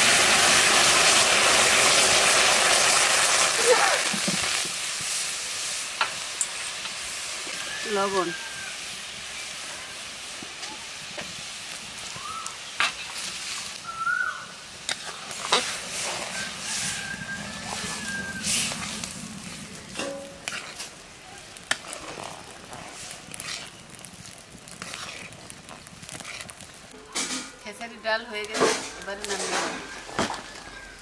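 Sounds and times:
dal bubbling in a wok: 0.0s - 27.7s
spatula knocking and scraping pan: 19.9s - 20.9s.

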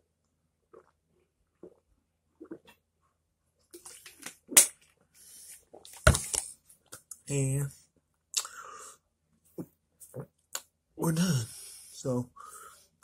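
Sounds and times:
man gulping: 0.7s - 2.8s.

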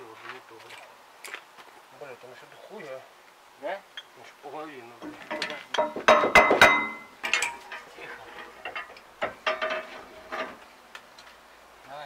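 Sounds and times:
metal tools striking steel: 5.0s - 9.8s.

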